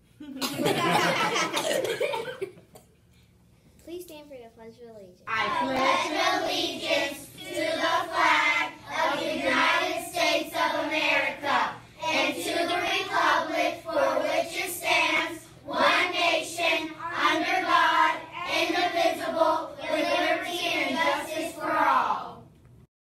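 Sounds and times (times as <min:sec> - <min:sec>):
children reciting in unison: 0:05.3 - 0:22.3.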